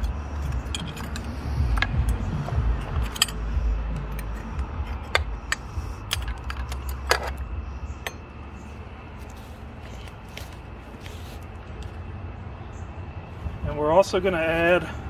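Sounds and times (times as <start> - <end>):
low rumble: 0.0 - 11.9.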